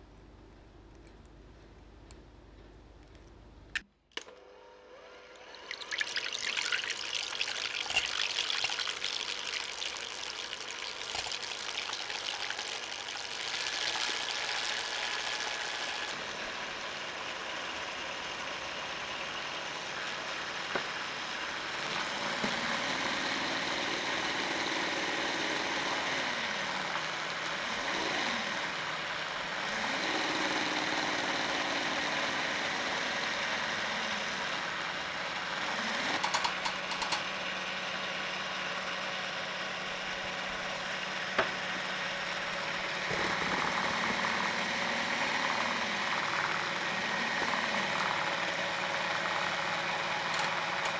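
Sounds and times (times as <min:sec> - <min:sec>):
electric hand mixer running: 0:04.2 - 0:36.3, 0:40.6 - 0:50.9
beaters whipping in glass bowl: 0:05.6 - 0:16.1.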